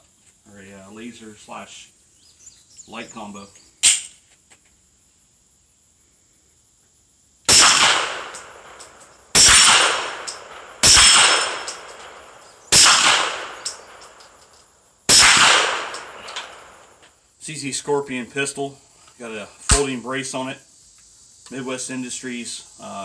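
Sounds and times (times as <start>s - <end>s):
suppressed pistol shots: 7.5s - 14.3s, 15.1s - 16.9s.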